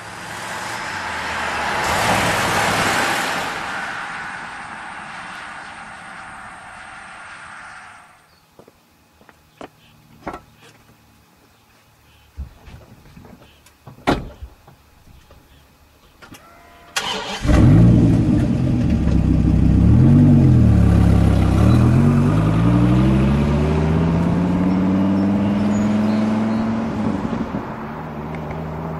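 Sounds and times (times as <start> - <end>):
car engine starting and revving: 0.0 - 6.3, 17.0 - 28.9
car accelerating away: 0.1 - 7.4, 17.0 - 28.9.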